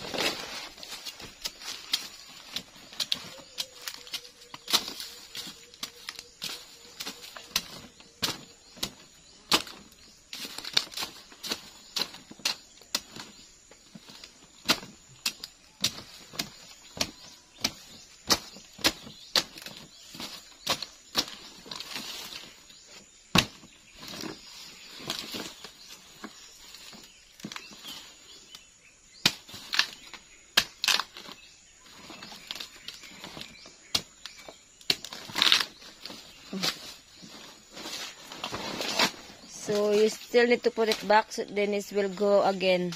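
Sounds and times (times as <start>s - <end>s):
machete chopping plant: 0.0s - 22.5s, 23.3s - 28.0s, 29.2s - 37.2s.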